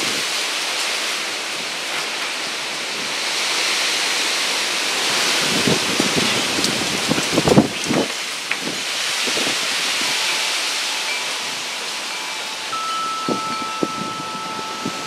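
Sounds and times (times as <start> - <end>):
storm wind through foliage: 0.0 - 15.0
wind buffeting microphone: 5.1 - 10.4, 11.4 - 15.0.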